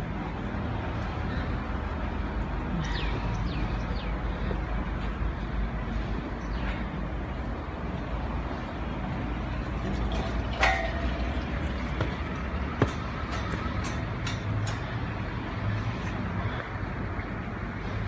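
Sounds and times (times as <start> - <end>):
concrete pump rumbling: 0.0 - 18.0
sharp metallic clank: 10.5 - 11.2.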